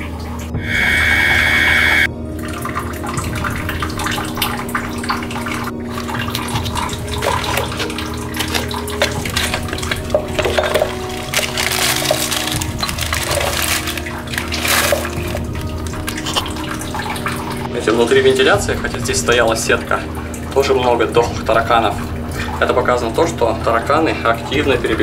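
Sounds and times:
rushing watery hum: 0.0s - 25.0s
noisy burst with whistle tone: 0.6s - 2.1s
glasses and containers clinking: 5.8s - 17.7s.

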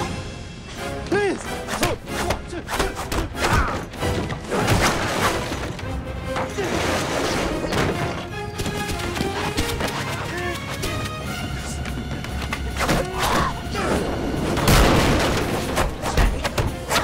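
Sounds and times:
film music: 0.0s - 17.0s.

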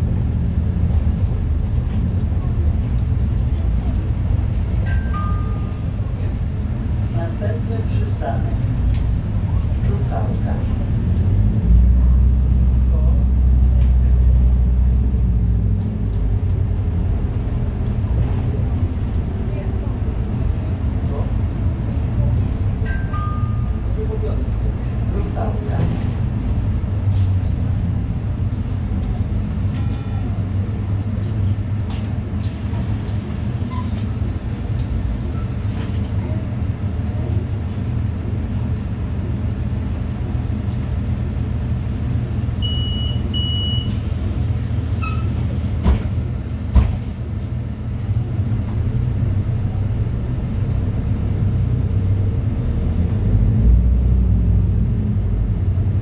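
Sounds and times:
bus engine and road rumble: 0.0s - 56.0s
short double beep: 42.6s - 43.9s.

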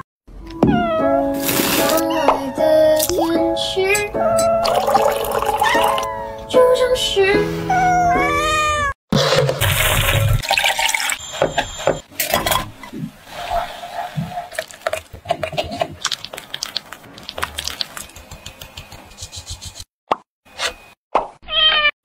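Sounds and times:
bowls and utensils clinking: 4.4s - 6.0s
milk pouring into saucepan: 4.7s - 5.6s, 9.6s - 11.2s.

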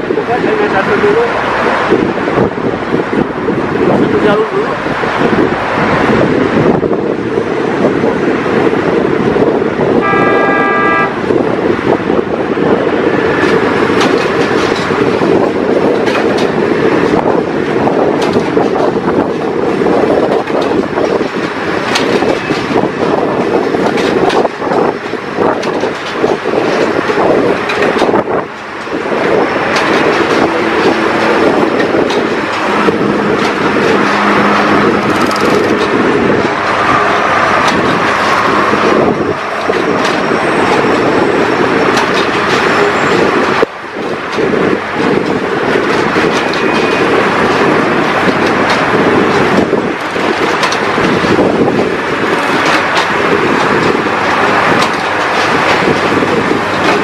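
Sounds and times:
heavy mechanical din: 21.8s - 42.9s.

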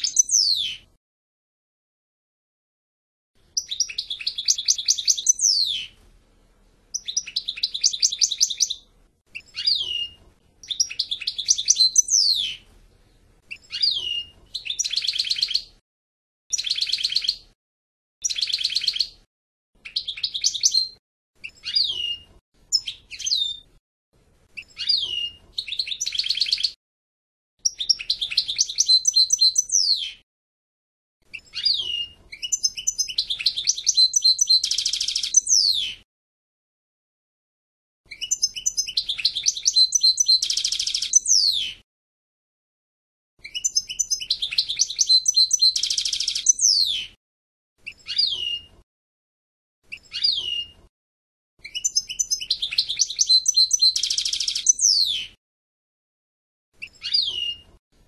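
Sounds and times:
finch singing twittering trills: 0.0s - 0.8s, 3.6s - 5.9s, 7.0s - 8.8s, 9.4s - 12.6s, 13.5s - 15.7s, 16.5s - 17.4s, 18.2s - 19.2s, 19.8s - 23.6s, 24.6s - 26.8s, 27.6s - 30.2s, 31.3s - 36.0s, 38.1s - 41.8s, 43.4s - 47.1s, 47.9s - 48.7s, 49.9s - 50.8s, 51.6s - 55.3s, 56.8s - 57.6s.

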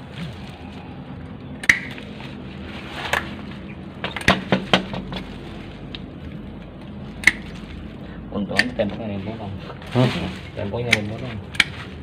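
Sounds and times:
roots snapping under a blade: 1.6s - 2.3s, 3.0s - 7.8s, 10.0s - 12.0s.

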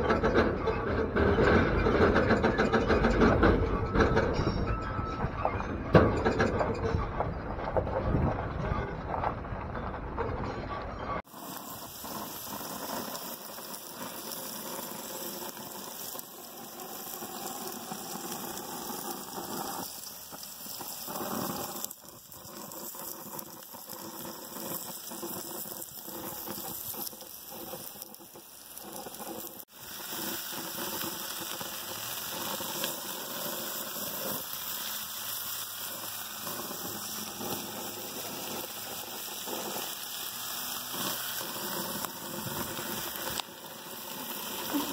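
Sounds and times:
meat sizzling on a grill: 11.2s - 44.9s.

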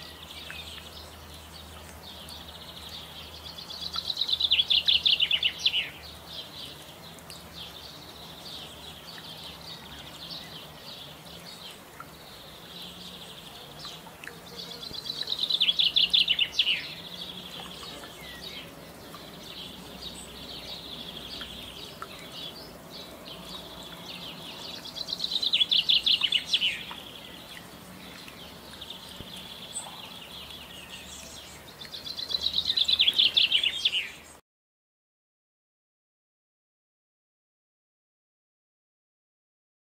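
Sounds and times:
songbird trilling: 3.7s - 6.0s, 14.6s - 34.2s.

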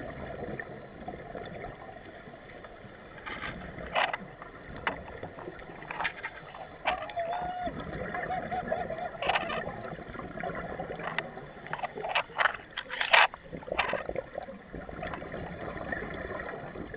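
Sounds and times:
regulator bubbles gurgling: 0.0s - 16.9s
muffled wavering cry underwater: 6.4s - 10.4s.

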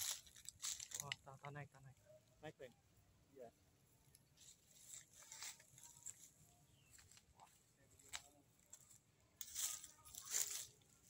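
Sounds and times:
rustles: 0.0s - 1.2s, 4.1s - 11.0s.

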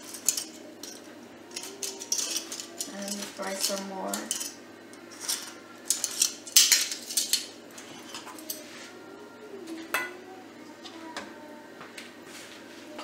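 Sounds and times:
metal tongs clinking on a plate: 0.0s - 8.6s, 9.9s - 10.2s.

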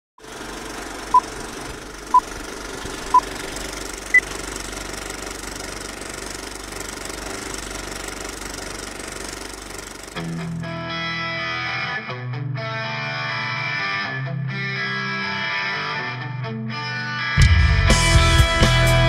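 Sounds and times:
film projector clattering: 0.2s - 10.7s
electric guitar through amplifier: 10.2s - 19.0s.

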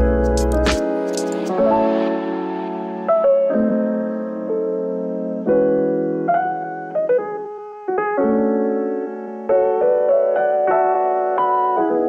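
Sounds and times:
electric piano chords: 0.0s - 12.0s.

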